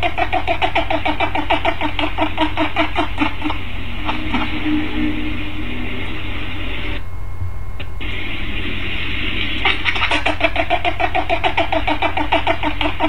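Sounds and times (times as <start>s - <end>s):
steady hiss: 3.2s - 10.3s
pufferfish croaking: 9.6s - 13.0s.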